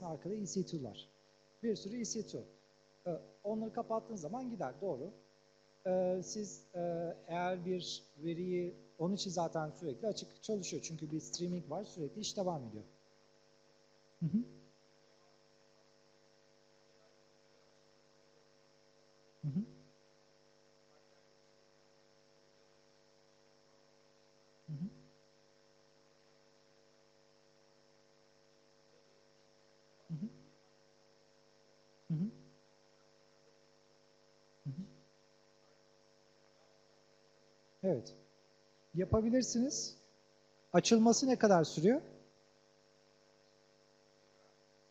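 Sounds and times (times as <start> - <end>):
electrical mains hum: 0.0 - 44.9
murmured voice sounds: 14.2 - 14.5.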